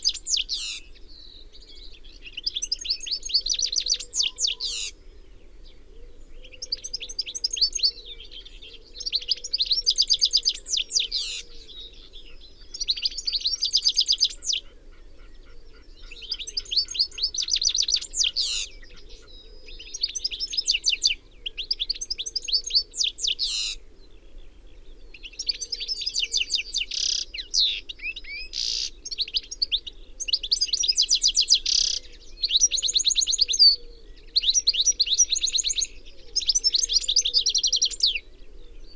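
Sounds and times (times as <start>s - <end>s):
finch twittering song: 0.0s - 23.8s, 24.5s - 38.9s.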